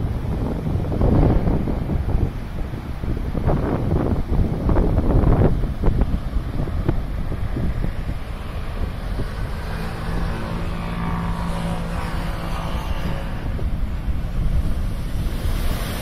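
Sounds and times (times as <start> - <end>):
wind buffeting microphone: 0.0 - 16.0
surf breaking on rocks: 12.8 - 16.0
wave crashing into spray: 14.4 - 16.0.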